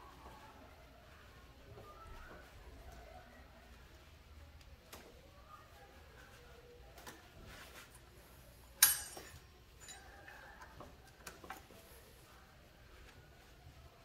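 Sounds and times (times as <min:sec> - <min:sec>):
tools and parts clinking: 0:08.8 - 0:10.4.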